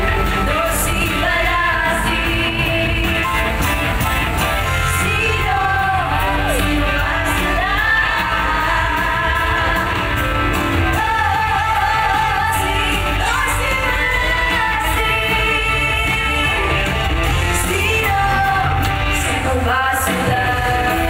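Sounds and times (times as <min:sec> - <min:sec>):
woman singing into microphone: 0:00.0 - 0:03.8, 0:04.6 - 0:21.0
loud band music: 0:00.0 - 0:21.0.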